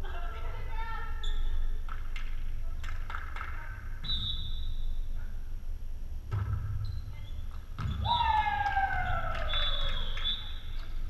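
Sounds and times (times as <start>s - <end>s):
sneakers squeaking on gym floor: 1.2s - 1.9s, 6.5s - 8.2s.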